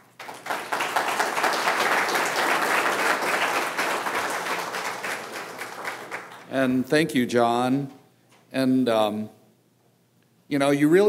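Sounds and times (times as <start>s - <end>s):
crowd applauding: 0.0s - 6.5s.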